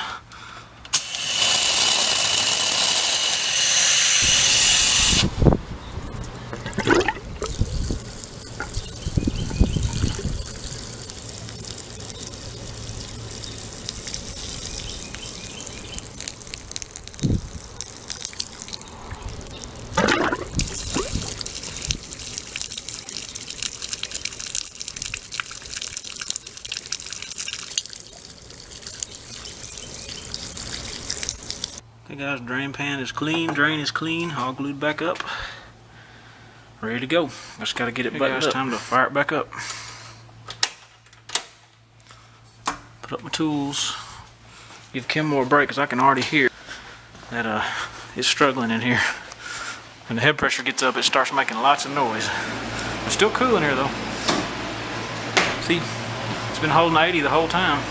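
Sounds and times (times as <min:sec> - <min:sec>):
water pouring from pipe: 0:01.0 - 0:05.3, 0:06.6 - 0:31.8
water rushing through pipe: 0:01.0 - 0:05.3, 0:06.6 - 0:31.8.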